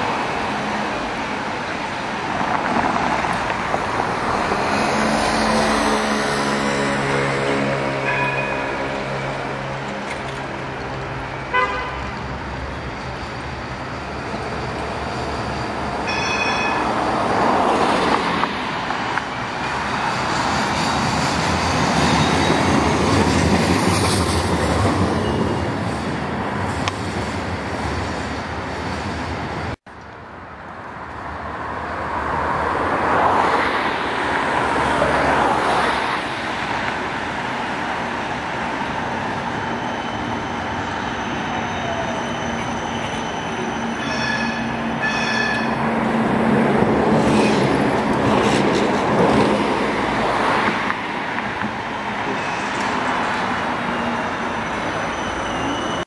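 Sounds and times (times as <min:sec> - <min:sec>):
street traffic: 0:00.0 - 0:56.0
trams rumbling on rails: 0:00.0 - 0:56.0
brief high ring: 0:16.1 - 0:16.9.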